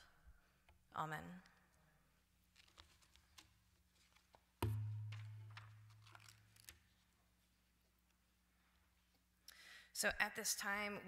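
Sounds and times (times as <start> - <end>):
paper rustling: 2.5 - 7.1.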